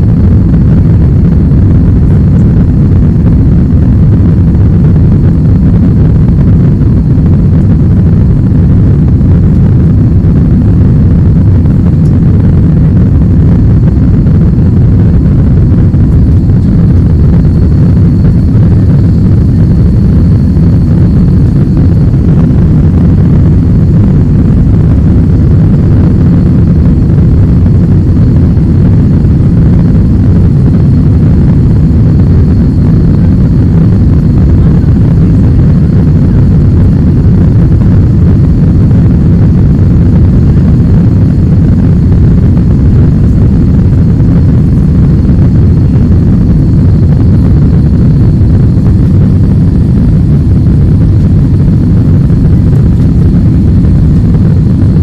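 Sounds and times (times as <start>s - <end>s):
faint high whine: 0.0s - 54.9s
jet engines rumbling: 0.2s - 35.4s.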